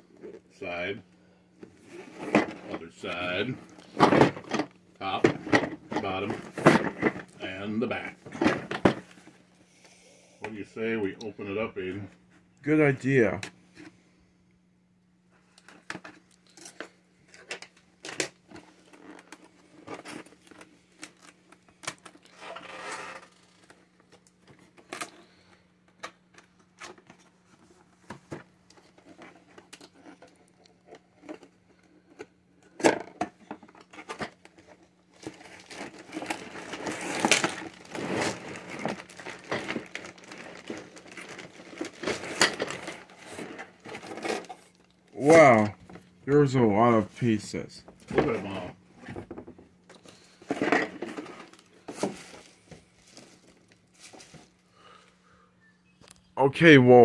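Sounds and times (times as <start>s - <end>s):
tape and cardboard tearing: 20.0s - 23.7s, 35.2s - 45.6s
plastic bags crinkling: 34.5s - 45.1s, 49.9s - 55.0s.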